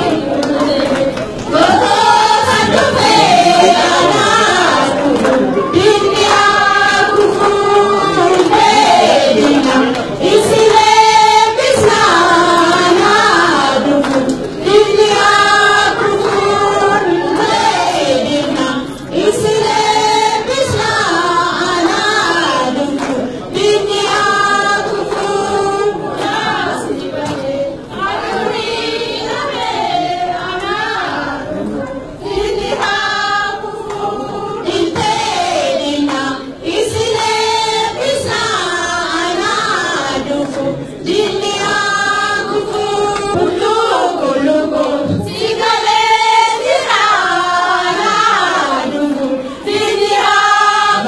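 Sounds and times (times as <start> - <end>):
group of people singing: 0.0 - 51.0.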